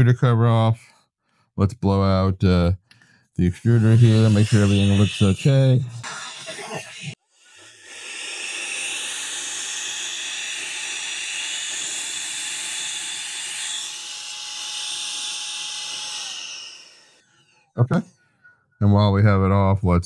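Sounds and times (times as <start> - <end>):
electric air duster whining: 3.7 - 17.3.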